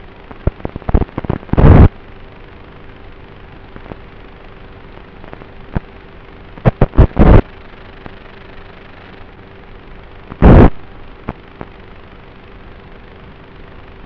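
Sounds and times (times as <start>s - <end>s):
steady hiss with hum: 0.0s - 14.0s
loud crackling bursts: 0.1s - 2.0s, 3.8s - 12.1s.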